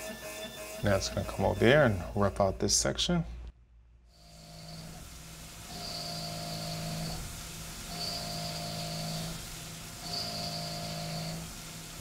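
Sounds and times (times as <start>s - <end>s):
milling machine cutting whine: 4.2s - 12.0s.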